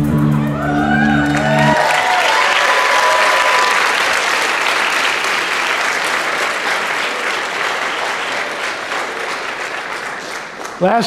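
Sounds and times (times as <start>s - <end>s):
audience applauding: 0.6s - 11.0s.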